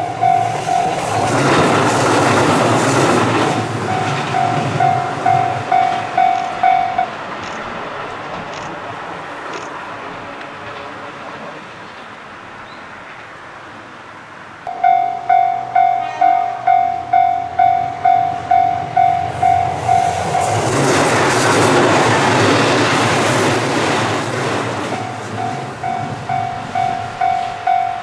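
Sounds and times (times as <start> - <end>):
level crossing alarm dinging: 0.0 - 1.4, 3.8 - 7.1, 14.7 - 20.6, 24.9 - 28.0
diesel railcar passing: 0.0 - 28.0.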